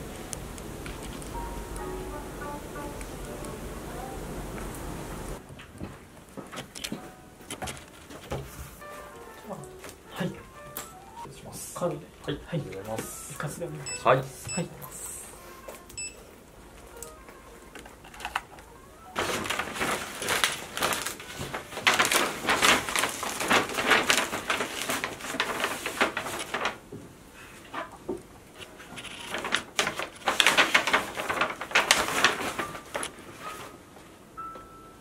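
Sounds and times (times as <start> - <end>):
paper bag crinkling: 0.8 - 1.9, 6.6 - 11.2, 16.8 - 26.9, 27.6 - 33.8.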